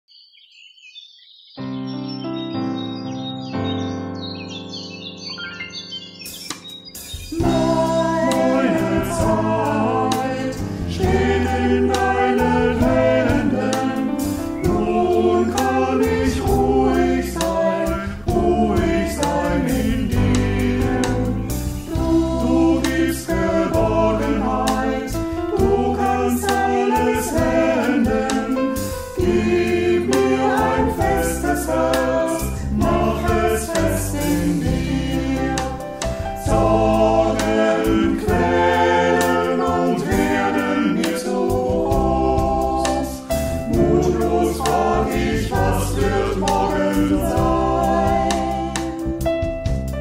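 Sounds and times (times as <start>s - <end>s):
piano: 1.6s - 50.0s
drum kit with cymbals: 6.5s - 50.0s
group of people singing: 7.3s - 49.2s.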